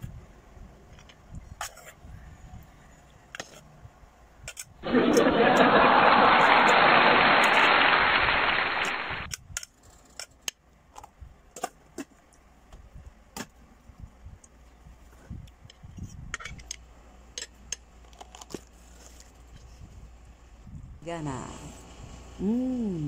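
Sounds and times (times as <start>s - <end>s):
loud steady hiss: 4.8s - 9.3s.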